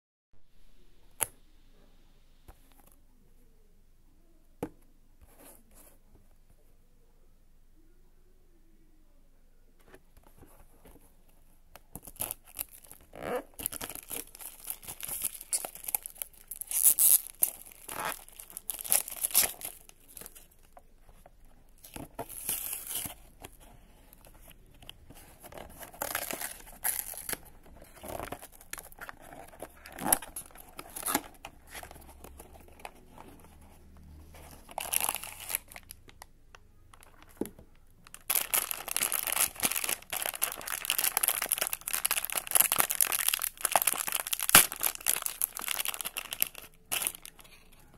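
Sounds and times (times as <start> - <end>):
plastic shrink-wrap tearing: 12.0 - 20.5, 34.6 - 36.0, 38.1 - 47.5
foil bag crinkling: 38.1 - 47.4.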